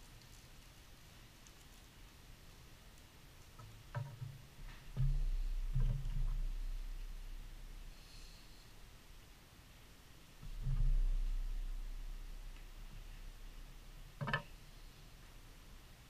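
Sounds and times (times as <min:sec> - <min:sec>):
light clicks of small items: 0:00.0 - 0:05.0
low handling rumble: 0:04.2 - 0:09.4, 0:10.4 - 0:16.0.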